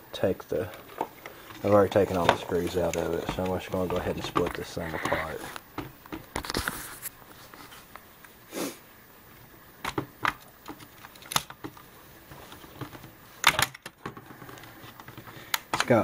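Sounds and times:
plastic clicks and clacks: 0.7 - 5.2, 9.8 - 11.8, 12.4 - 16.0.

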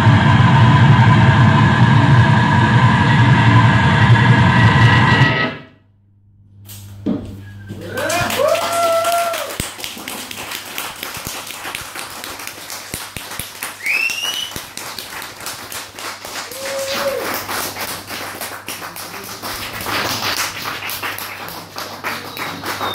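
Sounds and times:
noise swell: 0.0 - 5.8
steady low hum: 0.0 - 13.8
gliding whistle-like tones: 13.8 - 14.6.

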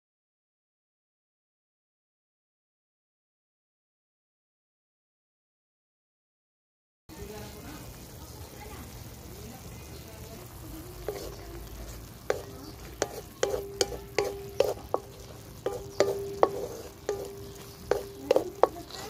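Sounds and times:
pork sizzling: 7.1 - 19.0
wooden spatula scraping wok: 10.0 - 19.0
metal wok ringing: 10.5 - 19.0.

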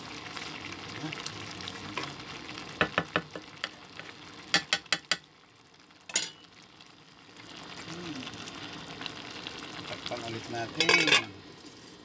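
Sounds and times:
stew simmering hiss: 0.0 - 12.0
wooden spatula knocking on pot: 2.8 - 3.8, 4.5 - 5.3.

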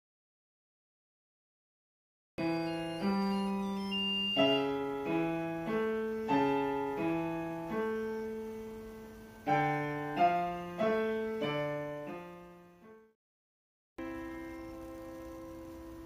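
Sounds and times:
slow solo piano piece: 2.4 - 13.1, 14.0 - 16.0.

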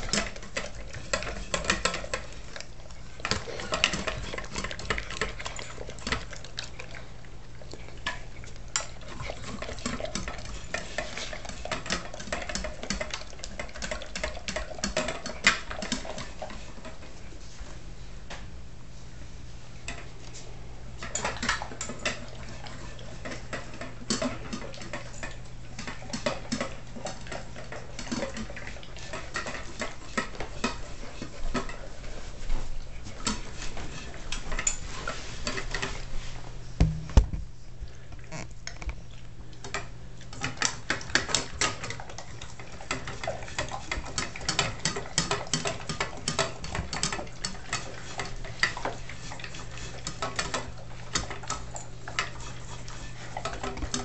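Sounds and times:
dog eating from metal bowl: 0.0 - 17.1, 21.0 - 36.2, 39.0 - 54.0
heavy knock: 36.8 - 37.5.

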